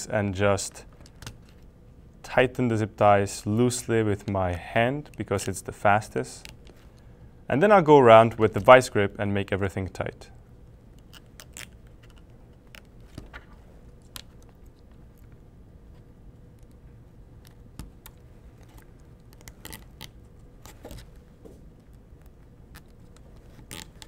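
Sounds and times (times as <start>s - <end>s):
zip ties clicking: 22.7s - 24.0s.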